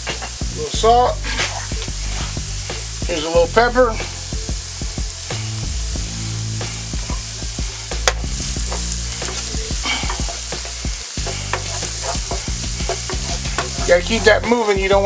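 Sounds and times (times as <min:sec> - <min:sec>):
vegetables sizzling in a frying pan: 0:00.0 - 0:15.0
utensil scraping a pan: 0:00.1 - 0:03.3, 0:06.9 - 0:14.7.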